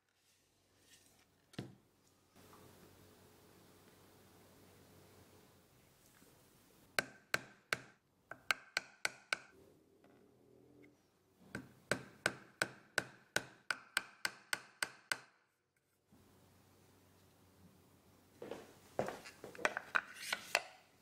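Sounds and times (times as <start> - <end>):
small hammer tapping metal: 7.0 - 9.5.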